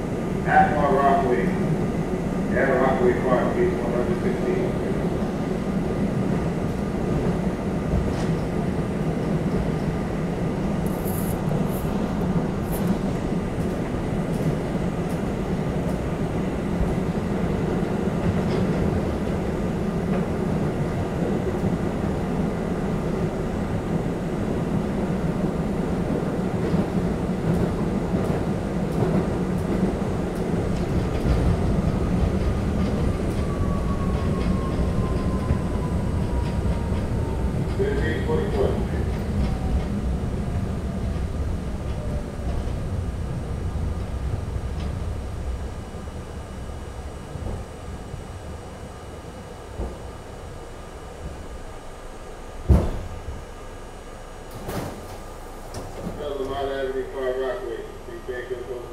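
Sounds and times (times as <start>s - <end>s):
subway wheels rumbling on rail: 0.0s - 58.9s
rail clicks: 10.8s - 19.5s, 26.1s - 43.3s.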